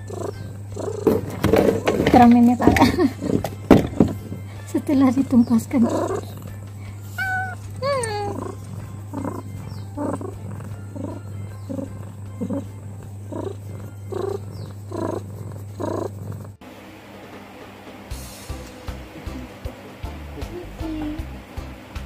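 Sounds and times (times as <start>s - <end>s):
cat purring: 0.0s - 16.8s
cat meowing: 5.8s - 16.5s.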